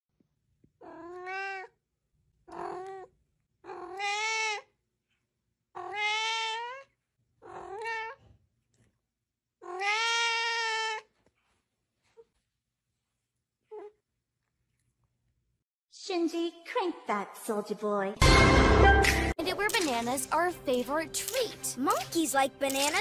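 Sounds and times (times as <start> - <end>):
kitten meowing: 3.7 - 4.6, 5.8 - 6.9, 9.6 - 11.0.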